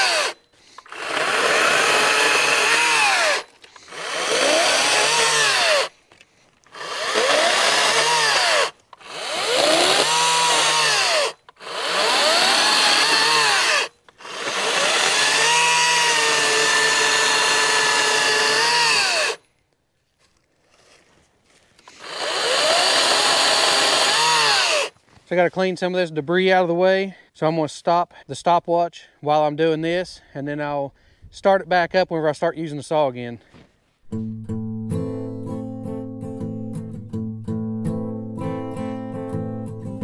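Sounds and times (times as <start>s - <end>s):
chainsaw cutting branches: 0.0s - 19.4s, 21.8s - 25.0s.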